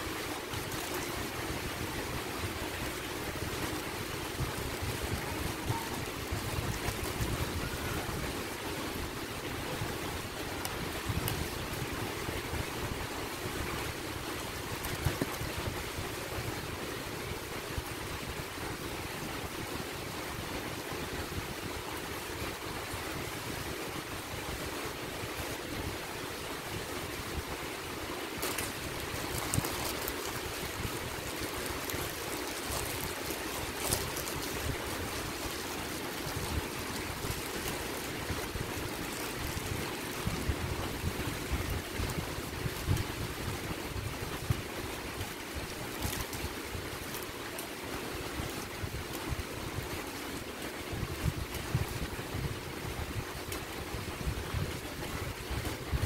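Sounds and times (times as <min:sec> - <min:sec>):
crunchy snack and wrapper crackling: 0:28.4 - 0:37.9.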